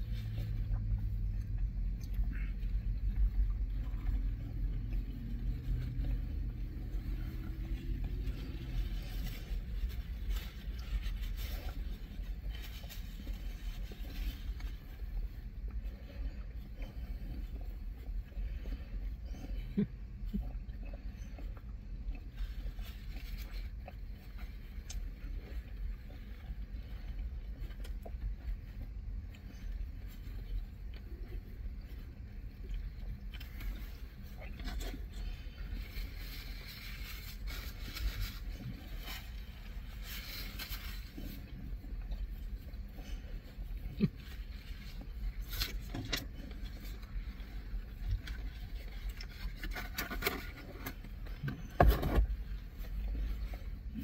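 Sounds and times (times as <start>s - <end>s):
car cabin rumble: 0.0s - 54.0s
chewing: 0.0s - 54.0s
sandwich wrapping rustling: 32.1s - 54.0s.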